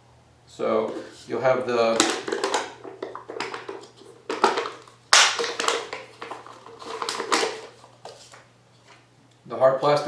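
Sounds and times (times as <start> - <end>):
plastic liner crinkling: 1.9 - 8.5.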